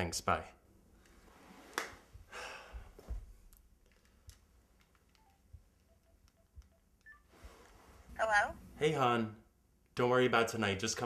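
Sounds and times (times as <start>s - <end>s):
phone keypad clicks and beeps: 5.1s - 7.3s.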